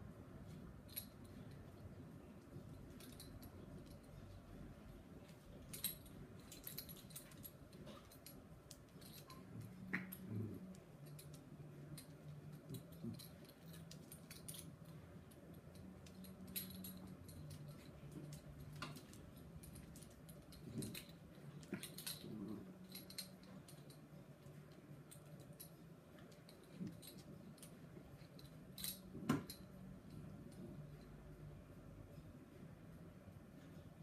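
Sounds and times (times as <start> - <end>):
claws clicking on tile floor: 5.6 - 15.0, 15.6 - 29.6.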